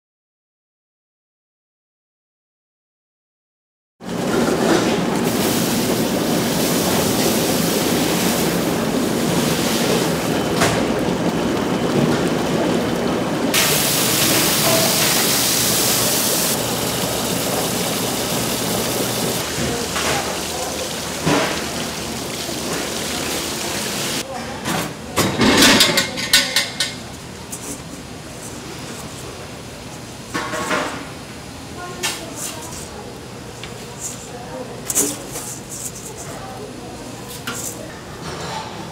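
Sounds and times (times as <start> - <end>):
tap water stream hissing: 5.2 - 10.3, 13.6 - 24.2.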